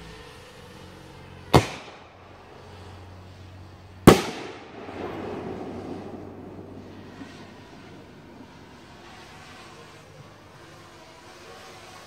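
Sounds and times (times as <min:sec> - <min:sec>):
firework shell bursting: 0:00.4 - 0:12.0
firework shell launch bang: 0:01.5 - 0:02.9, 0:04.0 - 0:10.1.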